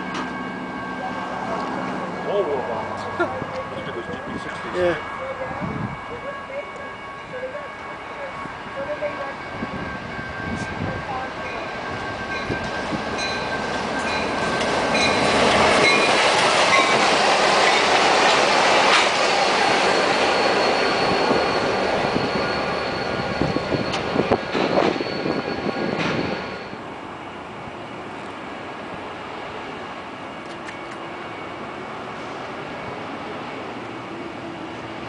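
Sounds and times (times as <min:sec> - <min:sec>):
steady high wheel squeal: 0:00.0 - 0:26.9
diesel locomotives passing: 0:00.0 - 0:35.0.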